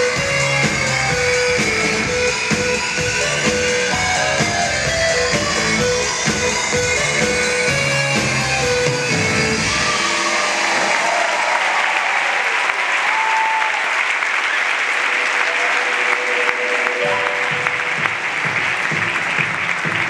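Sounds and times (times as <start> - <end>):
music: 0.0 - 11.4, 14.6 - 20.0
audience applauding: 9.6 - 20.0.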